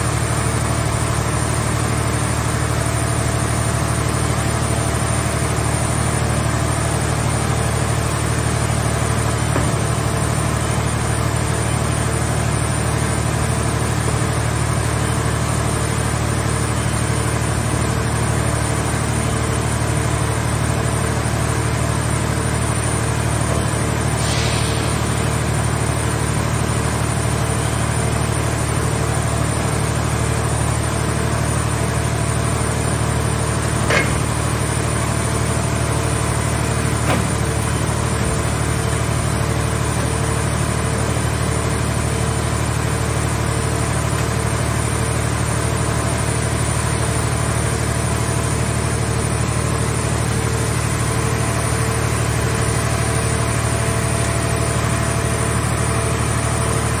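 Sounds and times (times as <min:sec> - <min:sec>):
hydraulic engine drone: 0:00.0 - 0:57.0
sharp metal clanks: 0:33.9 - 0:34.4.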